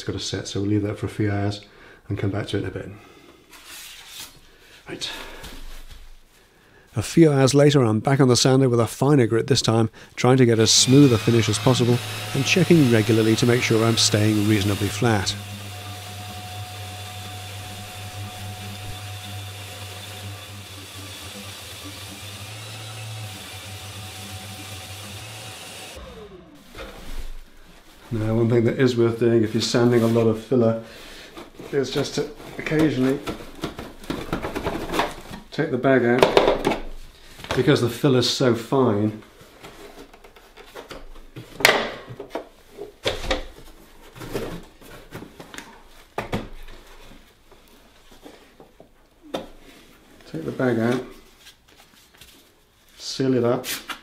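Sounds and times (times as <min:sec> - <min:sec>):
dust extractor humming: 0:10.5 - 0:28.4
orbital sander running: 0:10.6 - 0:26.8.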